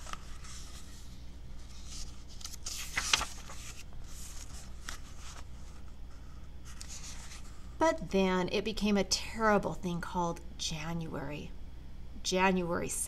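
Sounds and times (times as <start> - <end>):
paper page rustling: 0.0 - 7.7
crisp page snap: 1.9 - 5.1.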